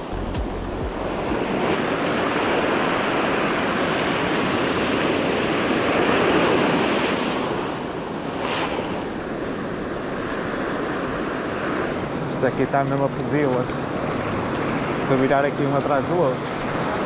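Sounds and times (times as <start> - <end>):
ocean surf breaking: 0.0 - 17.0.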